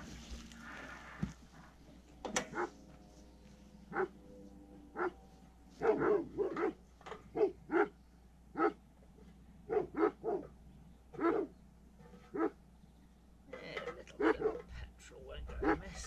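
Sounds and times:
dog barking: 2.5s - 2.8s, 3.9s - 4.2s, 4.9s - 5.2s, 5.8s - 8.8s, 9.7s - 10.5s, 11.2s - 11.5s, 12.3s - 12.6s, 14.2s - 14.7s.

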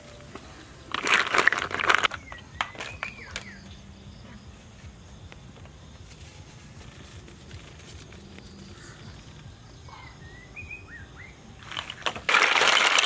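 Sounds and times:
low outdoor background: 0.0s - 13.0s
rising bird chirps: 2.1s - 4.6s, 8.1s - 11.6s.

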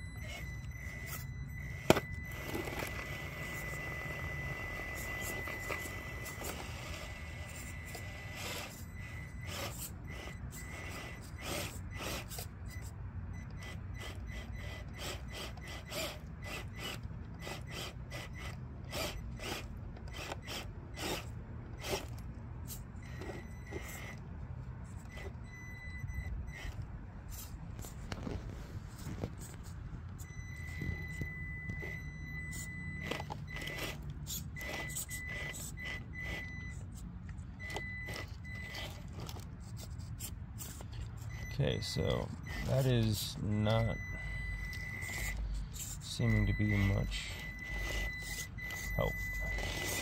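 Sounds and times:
high electric motor whine: 0.0s - 24.3s, 30.2s - 36.8s, 41.4s - 50.0s
tyres and plastic scraping rock: 1.7s - 4.2s.

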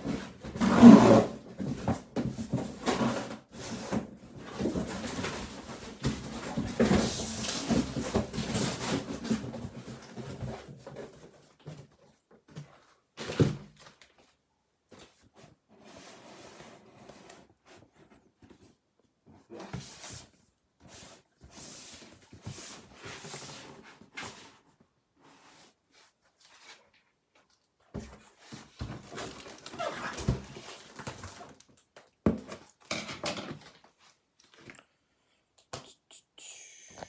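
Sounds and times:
handling rustling and scraping: 0.0s - 35.0s.

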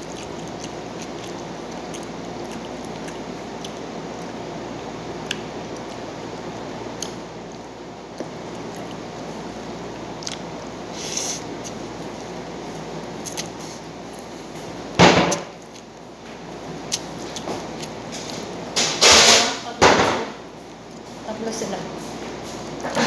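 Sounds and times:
room noise: 0.0s - 23.0s
loud sharp bang: 18.8s - 20.4s.

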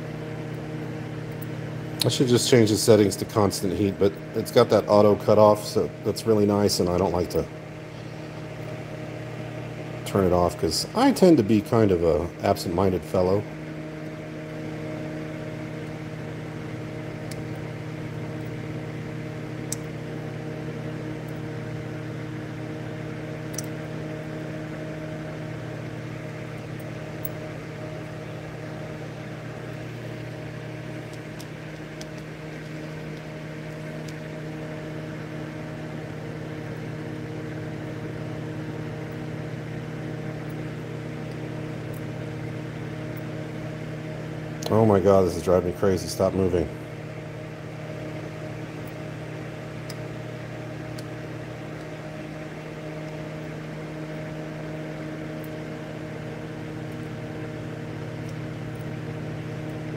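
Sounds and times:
electrical hum: 0.0s - 59.9s
fan-like hiss: 0.0s - 59.9s.

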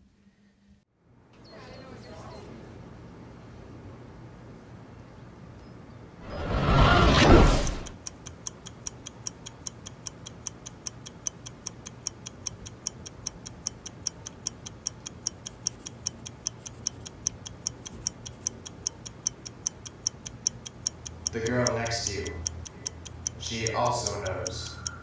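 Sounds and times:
loud rush of noise: 6.2s - 8.0s
clock ticking: 7.2s - 25.0s.

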